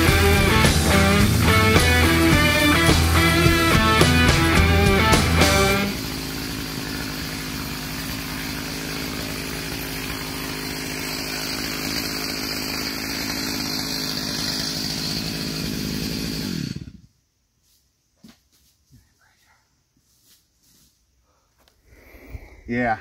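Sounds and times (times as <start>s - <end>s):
chainsaw running: 0.0s - 17.2s.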